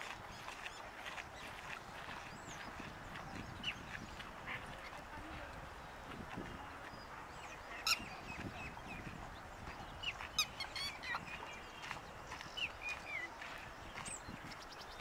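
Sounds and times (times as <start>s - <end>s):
birds chirping and whistling: 7.4s - 15.0s.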